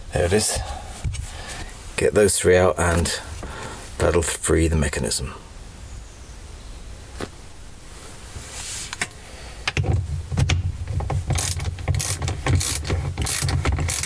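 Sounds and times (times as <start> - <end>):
socket ratchet clicking: 11.3 - 14.0.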